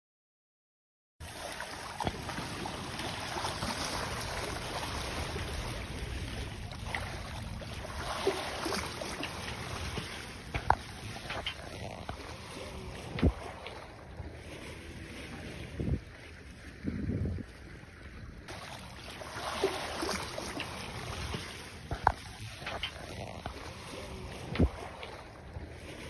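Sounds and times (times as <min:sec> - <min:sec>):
water splashing along a hull: 0:01.2 - 0:26.0
wind on the microphone: 0:09.6 - 0:18.5, 0:21.1 - 0:26.0.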